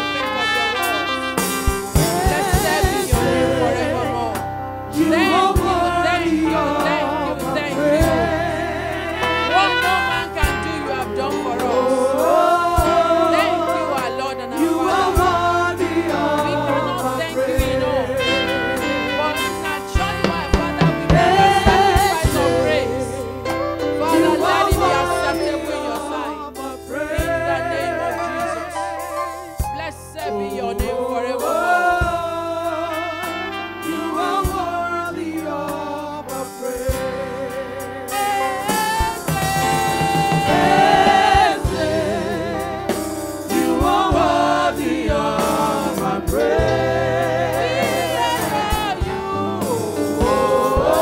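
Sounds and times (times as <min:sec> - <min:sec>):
deep beats: 0:00.0 - 0:35.9, 0:36.8 - 0:51.0
held chords and bass: 0:00.0 - 0:51.0
backing singers: 0:01.1 - 0:51.0
woman singing: 0:02.0 - 0:23.3, 0:24.0 - 0:29.0, 0:30.1 - 0:37.4.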